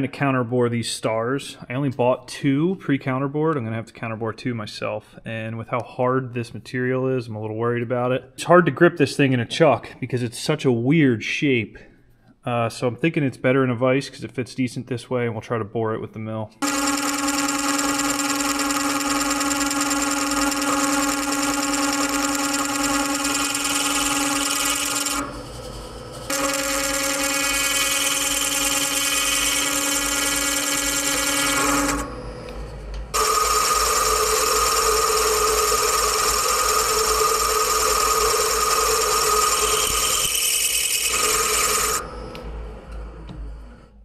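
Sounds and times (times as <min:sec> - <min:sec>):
milling cutter ringing: 0:16.6 - 0:43.2.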